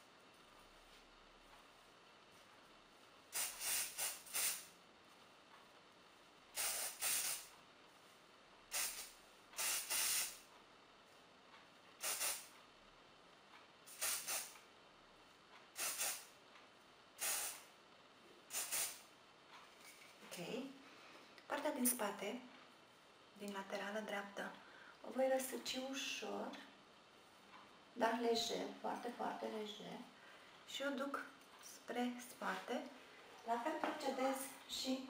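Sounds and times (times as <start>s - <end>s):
aerosol spray hissing bursts: 3.3s - 4.8s, 6.5s - 7.5s, 8.7s - 10.4s, 12.0s - 12.5s, 13.9s - 14.6s, 15.8s - 16.3s, 17.2s - 17.7s, 18.5s - 19.1s.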